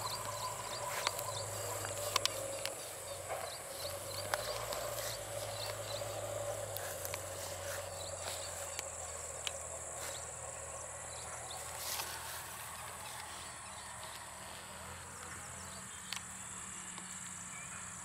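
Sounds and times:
faint clicks: 0:00.0 - 0:09.7
insect chirring: 0:00.0 - 0:17.6.

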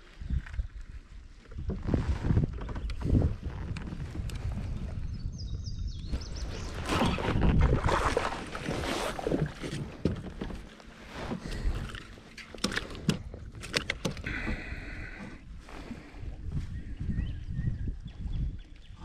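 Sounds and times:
knocks and clatter on kayak deck: 0:01.6 - 0:03.8, 0:06.8 - 0:15.9
water splashing: 0:06.7 - 0:10.1.

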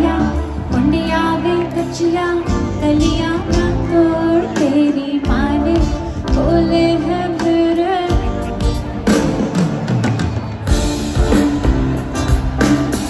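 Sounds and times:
woman singing: 0:00.0 - 0:09.0
bass-heavy pop backing: 0:00.0 - 0:13.0.

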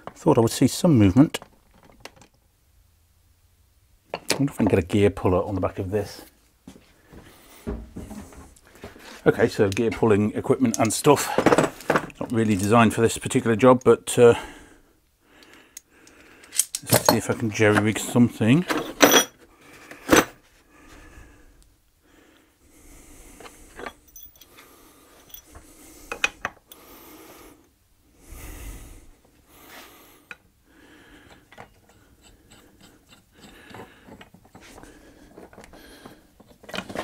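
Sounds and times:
metal tool parts clinking: 0:16.4 - 0:17.4, 0:18.7 - 0:19.4, 0:23.8 - 0:24.6, 0:25.2 - 0:25.5.

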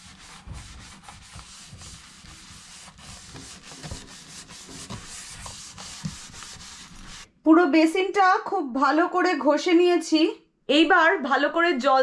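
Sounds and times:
brush scrubbing a steel sink: 0:00.0 - 0:07.3.

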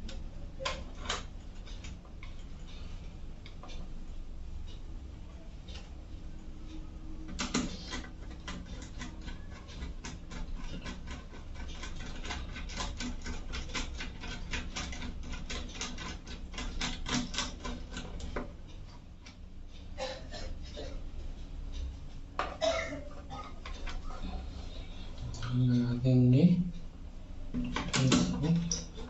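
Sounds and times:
steady low hum: 0:00.0 - 0:29.0
screwdriver clicks and scrapes: 0:07.4 - 0:18.4.

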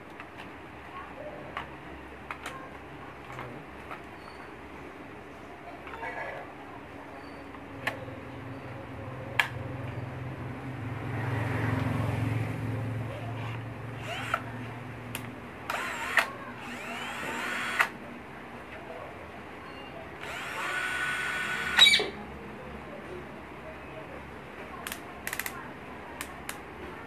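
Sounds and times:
cordless drill running: 0:14.0 - 0:14.4, 0:15.7 - 0:17.9, 0:20.2 - 0:21.9.

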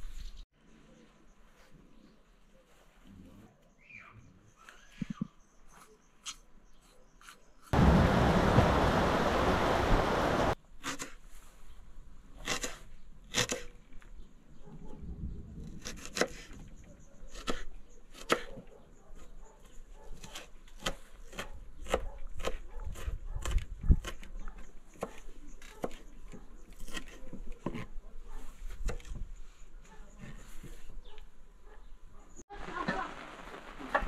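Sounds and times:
loud rushing noise: 0:07.8 - 0:10.6.

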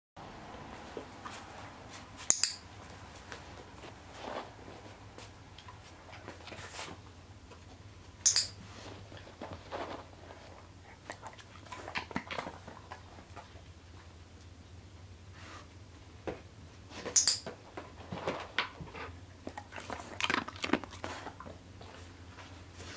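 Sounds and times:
sharp clicks: 0:08.2 - 0:08.6
dog chewing: 0:10.2 - 0:13.8, 0:18.9 - 0:22.6.

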